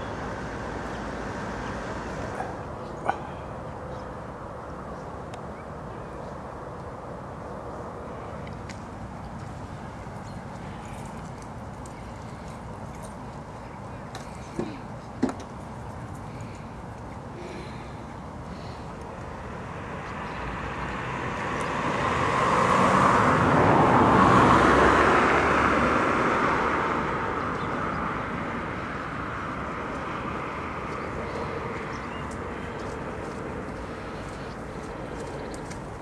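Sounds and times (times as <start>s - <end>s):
vehicle passing by: 0.0s - 4.6s, 15.8s - 36.0s.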